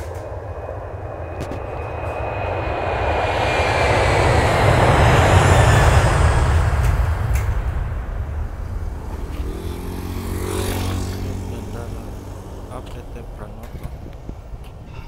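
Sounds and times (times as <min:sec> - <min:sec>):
high whine sliding down: 0:00.0 - 0:09.6
aircraft engine noise: 0:00.0 - 0:15.0.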